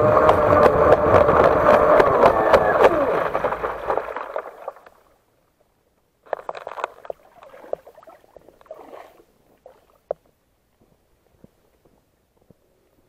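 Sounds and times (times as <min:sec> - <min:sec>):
model boat motor: 0:00.0 - 0:04.1
water rushing: 0:00.0 - 0:05.2
splashes and drips: 0:01.8 - 0:05.2, 0:06.3 - 0:10.2.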